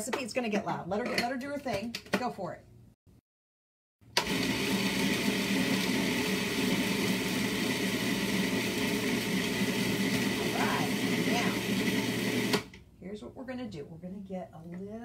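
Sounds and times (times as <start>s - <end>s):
food processor motor running: 4.2s - 12.8s.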